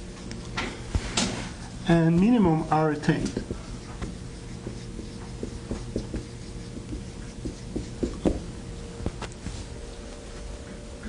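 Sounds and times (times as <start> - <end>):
faint steady hum: 0.0 - 11.0
pen writing taps and scrapes: 3.1 - 8.4.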